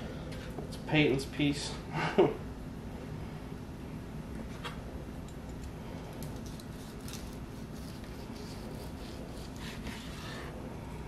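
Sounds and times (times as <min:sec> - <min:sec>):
low background hum: 0:00.0 - 0:11.0
knife sawing through ham crust: 0:06.7 - 0:10.6.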